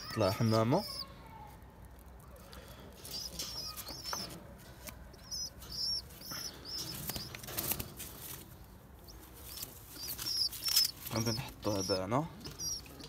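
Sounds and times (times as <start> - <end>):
pigeons rustling in wire cage: 2.8 - 11.8
bird chirping: 3.0 - 7.7, 9.0 - 13.0.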